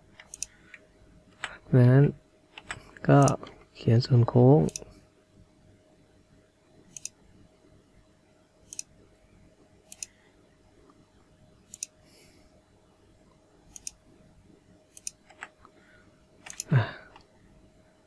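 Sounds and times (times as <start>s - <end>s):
faint steady hum: 0.0s - 18.0s
computer mouse clicking: 0.1s - 0.8s, 2.5s - 3.6s, 6.9s - 7.2s, 8.6s - 8.9s, 9.9s - 10.2s, 11.6s - 12.0s, 13.7s - 14.0s, 14.9s - 15.7s, 16.4s - 17.3s.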